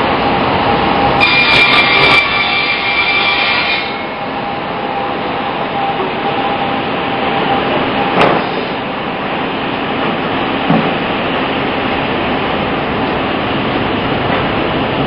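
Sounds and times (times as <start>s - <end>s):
band saw cutting wood: 1.2s - 4.0s.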